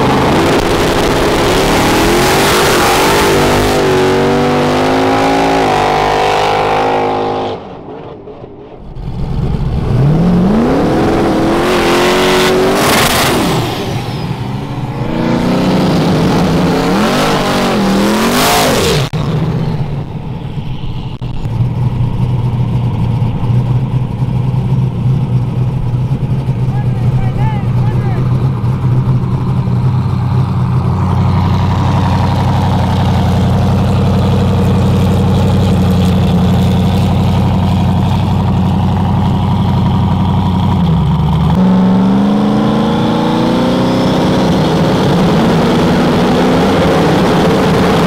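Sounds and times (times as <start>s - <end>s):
race car engines revving: 0.0s - 48.0s
engine idling: 8.8s - 11.6s, 19.3s - 41.6s.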